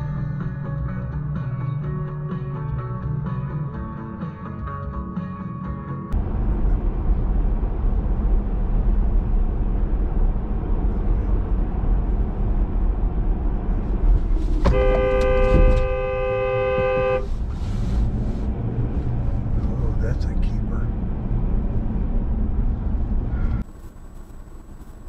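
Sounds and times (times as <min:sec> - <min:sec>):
car engine and road rumble: 0:06.1 - 0:25.0
two-tone car horn blast: 0:14.6 - 0:17.4.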